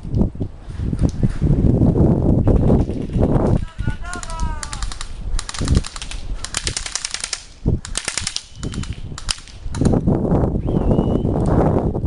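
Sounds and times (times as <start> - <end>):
airsoft guns firing bursts: 2.6 - 9.9.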